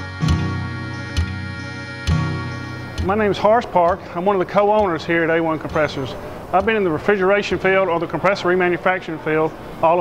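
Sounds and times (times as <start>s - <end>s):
intro music with steady beat: 0.0s - 6.9s.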